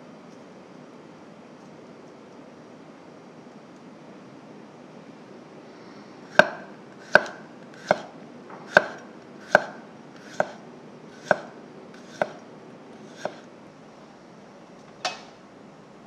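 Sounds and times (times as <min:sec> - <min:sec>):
knife striking cutting board: 0:06.3 - 0:10.6, 0:11.2 - 0:12.4, 0:13.0 - 0:13.4.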